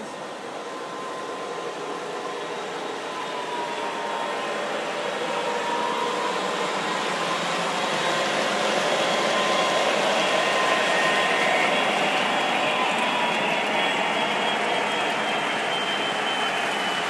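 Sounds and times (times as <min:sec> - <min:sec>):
model train whirring on track: 0:00.0 - 0:17.0.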